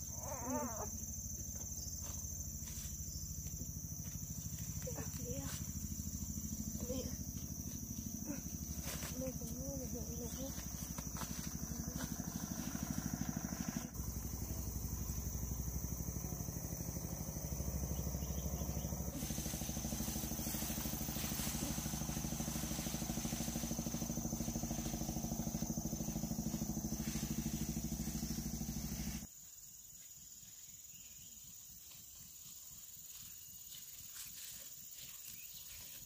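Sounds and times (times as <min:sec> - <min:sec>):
small engine running: 0:01.0 - 0:29.3.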